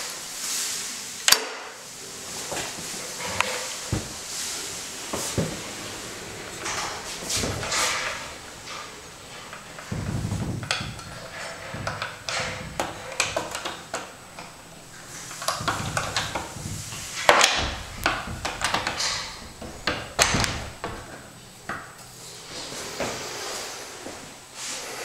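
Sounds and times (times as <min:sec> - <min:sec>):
sliding door rumbling on track: 0:01.8 - 0:25.0
door hardware clicks and knocks: 0:06.5 - 0:21.9.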